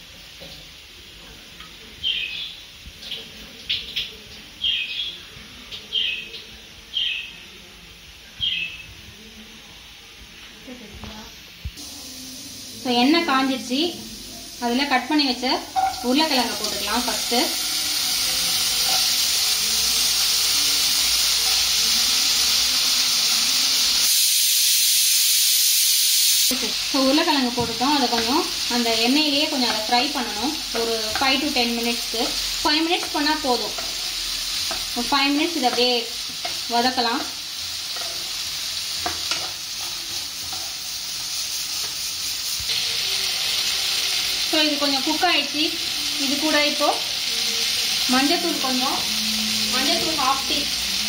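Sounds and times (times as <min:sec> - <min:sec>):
potato sizzling in hot oil: 0:00.0 - 0:09.4, 0:10.3 - 0:51.0
spatula scraping pan: 0:17.6 - 0:19.6.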